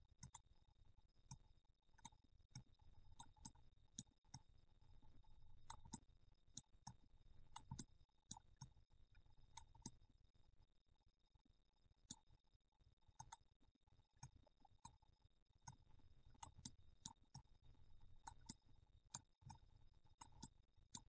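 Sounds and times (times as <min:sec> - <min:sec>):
computer mouse clicks: 0:00.2 - 0:00.5, 0:02.0 - 0:04.5, 0:05.6 - 0:06.0, 0:06.6 - 0:08.8, 0:09.5 - 0:10.0, 0:13.2 - 0:13.5, 0:15.7 - 0:17.5, 0:18.2 - 0:21.0.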